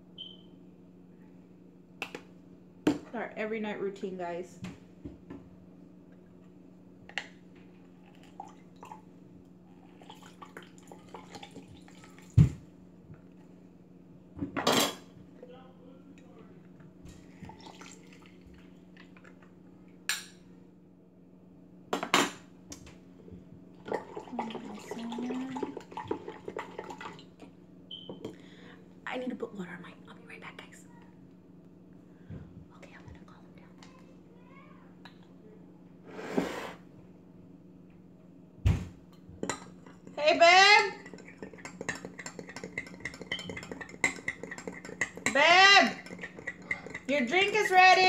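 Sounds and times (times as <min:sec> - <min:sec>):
steady low hum: 0:12.4 - 0:48.0
spoon stirring in plastic cup: 0:40.9 - 0:48.0
utensils and cups clinking: 0:41.0 - 0:47.8.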